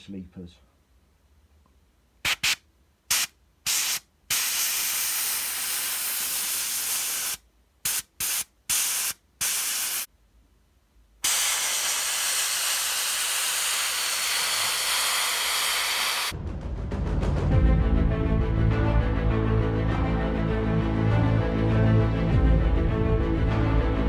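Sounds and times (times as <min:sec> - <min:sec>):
airbrush spraying hiss: 0:02.3 - 0:10.1, 0:11.2 - 0:16.4.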